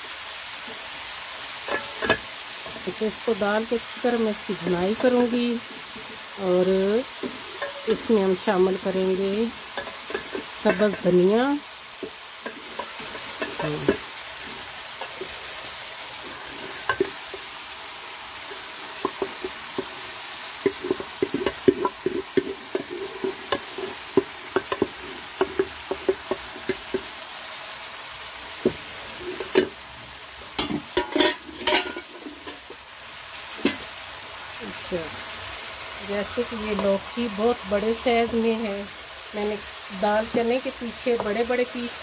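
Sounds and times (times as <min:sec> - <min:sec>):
food sizzling in a pan: 0:00.0 - 0:42.0
pot clinking and thudding: 0:01.6 - 0:03.0, 0:07.1 - 0:08.9, 0:09.7 - 0:11.3, 0:12.0 - 0:15.5, 0:16.2 - 0:17.5, 0:18.5 - 0:27.1, 0:28.6 - 0:29.8, 0:30.5 - 0:32.8.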